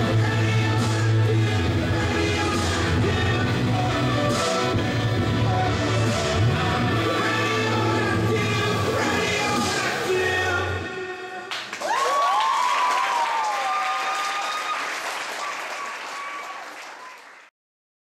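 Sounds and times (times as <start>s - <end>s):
audience applause: 11.5s - 17.5s
whooping cheers: 11.8s - 17.5s.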